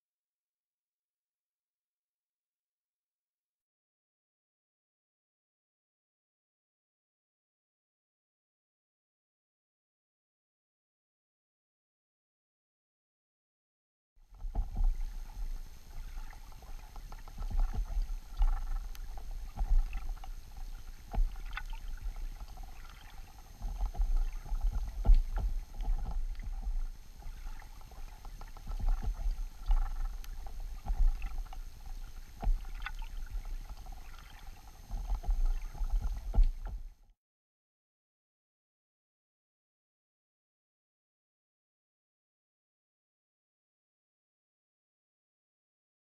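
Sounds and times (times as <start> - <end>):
faint steady hum: 14.2 - 37.2
underwater rumbling of moving water: 14.3 - 37.1.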